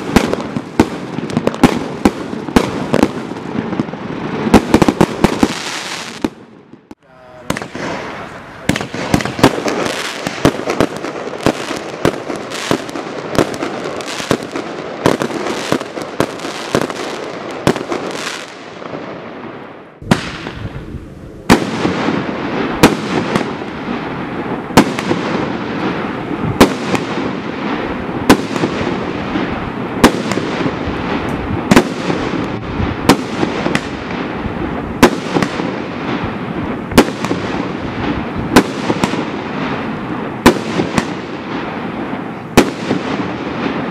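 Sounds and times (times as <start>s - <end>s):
firework hissing and crackling: 0.0s - 6.3s, 7.3s - 18.8s
firework pops and bangs: 0.0s - 19.0s, 20.0s - 20.8s, 21.5s - 34.4s, 35.0s - 43.9s.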